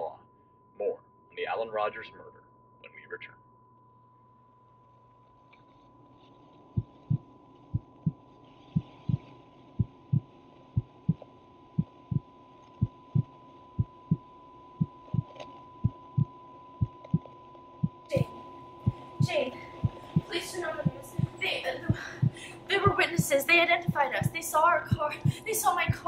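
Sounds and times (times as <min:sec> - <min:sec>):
heartbeat: 0:06.8 - 0:26.0.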